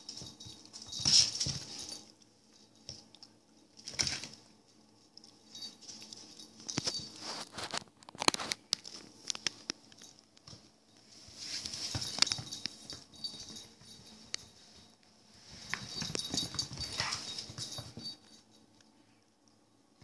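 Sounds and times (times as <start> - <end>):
puppy scuffling with a toy: 0.0 - 2.2, 5.4 - 9.2, 10.0 - 18.4.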